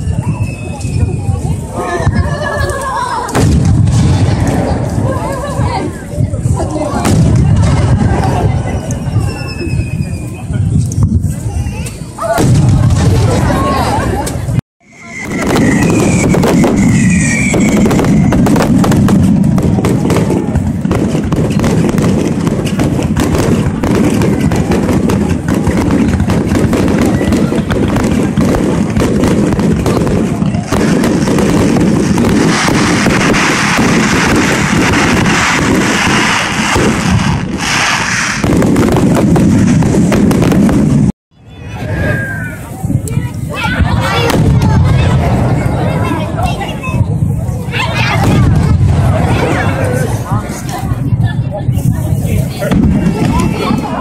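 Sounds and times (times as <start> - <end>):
fireworks whistles: 0.0 - 1.8, 7.2 - 12.9, 14.3 - 42.7
fireworks crackling bangs: 0.0 - 54.0
low rumble: 12.4 - 21.6.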